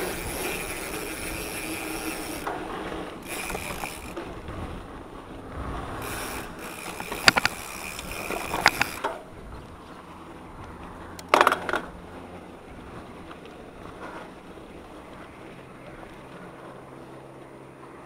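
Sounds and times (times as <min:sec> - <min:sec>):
bike hub ratchet buzzing: 0:00.0 - 0:04.3, 0:06.0 - 0:09.2
bike clacking over bumps: 0:00.0 - 0:17.6.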